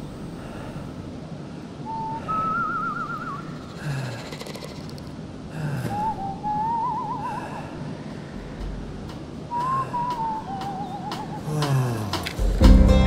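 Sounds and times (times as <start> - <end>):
whistled melody with vibrato: 6.1 - 7.4, 9.5 - 11.6.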